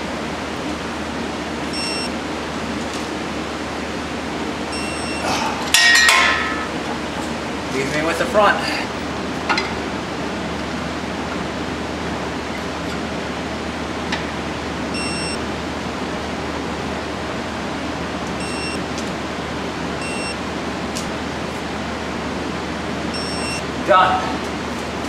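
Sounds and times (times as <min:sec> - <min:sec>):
short high beeps: 0:01.8 - 0:02.1, 0:04.8 - 0:05.2, 0:23.2 - 0:23.6.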